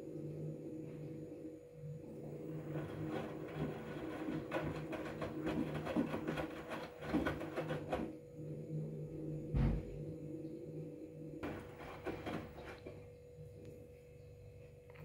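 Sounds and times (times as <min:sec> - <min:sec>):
washing machine motor hum: 0:00.0 - 0:14.8
laundry sloshing and knocking: 0:02.6 - 0:08.1, 0:11.4 - 0:13.0
low thud: 0:09.5 - 0:10.0.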